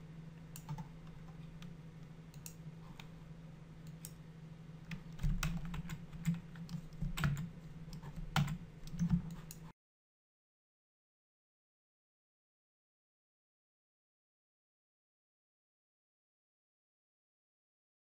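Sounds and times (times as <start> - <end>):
steady low hum: 0.0 - 9.7
computer keyboard keys clicking: 0.6 - 0.9, 4.9 - 9.7.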